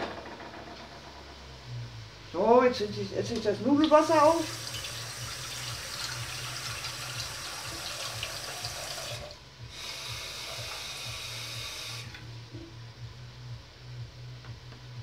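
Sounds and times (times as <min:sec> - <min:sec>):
tap running water into pot: 0:03.8 - 0:09.3.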